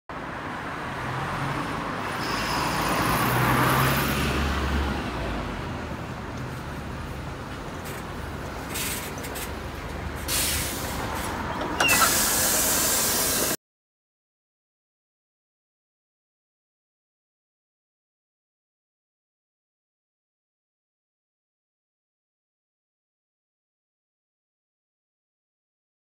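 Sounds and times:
bus diesel engine rumbling: 4.9s - 13.6s
compressed-air hiss: 10.3s - 11.2s, 11.8s - 13.6s.

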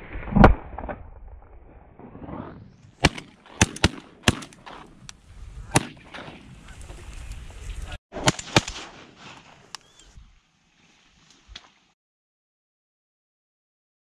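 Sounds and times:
shotgun shots: 3.0s - 4.8s, 5.7s - 6.5s, 8.1s - 9.6s.

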